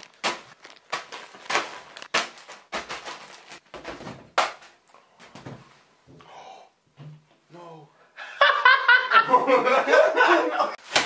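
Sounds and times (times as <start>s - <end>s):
plastic bags crinkling: 0.0s - 3.7s.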